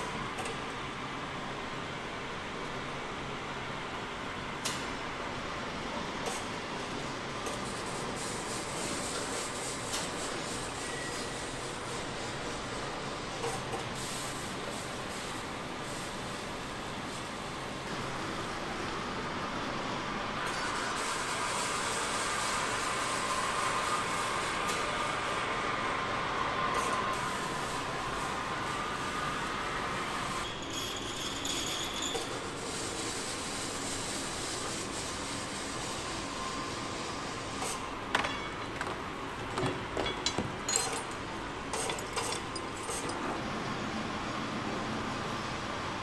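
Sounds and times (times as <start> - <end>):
factory machinery hiss: 0.0 - 30.7, 31.9 - 38.1
faint machinery whine: 0.0 - 46.0
metal parts clinking: 39.9 - 43.2.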